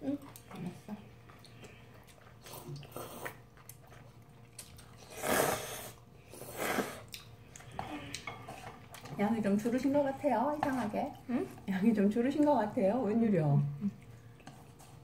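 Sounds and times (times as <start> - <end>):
quiet chewing: 0.0 - 11.7, 13.6 - 15.0
noodles being slurped: 1.4 - 9.2.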